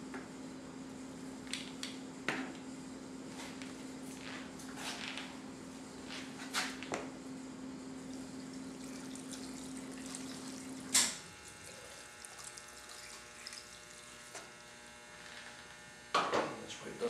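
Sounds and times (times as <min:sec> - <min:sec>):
faint hum: 0:00.0 - 0:17.0
liquid pouring into container: 0:08.1 - 0:11.0, 0:11.6 - 0:14.0.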